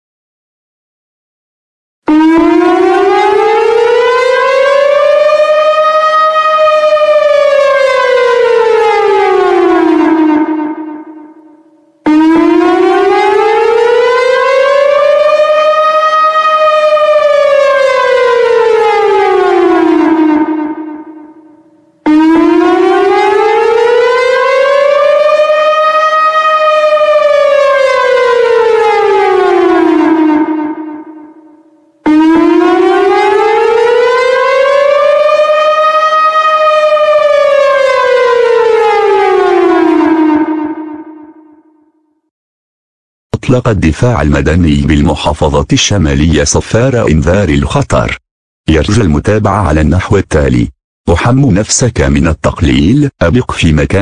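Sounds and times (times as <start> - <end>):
siren wailing: 2.1 - 42.2.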